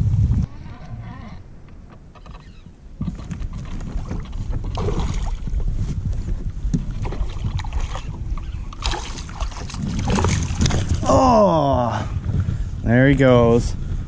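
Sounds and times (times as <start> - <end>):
wind rumble on microphone: 0.0 - 14.0
water splashing and sloshing: 3.0 - 11.5
fish thrashing at surface: 8.8 - 11.2.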